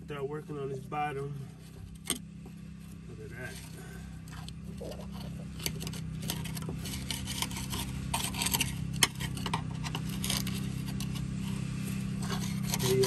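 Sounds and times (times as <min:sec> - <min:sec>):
low hum: 0:00.0 - 0:13.0
screwdriver scraping dirt off metal: 0:03.4 - 0:13.0.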